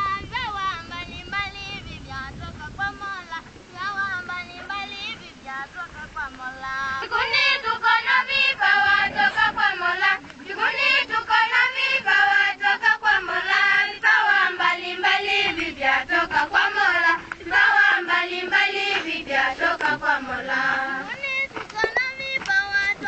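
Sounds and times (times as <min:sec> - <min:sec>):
children's choir singing: 0:06.6 - 0:23.0.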